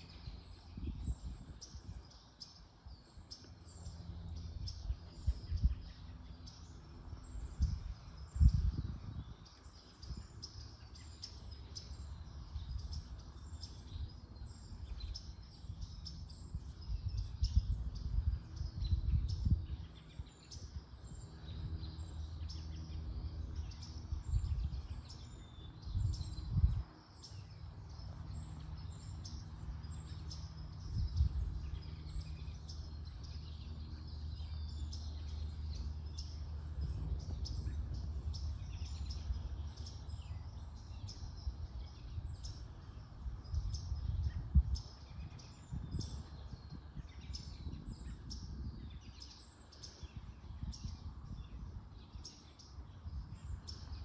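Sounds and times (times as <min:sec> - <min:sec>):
small birds chirping: 0:00.0 - 0:54.0
steady low hum: 0:00.0 - 0:54.0
wind gusts: 0:00.0 - 0:54.0.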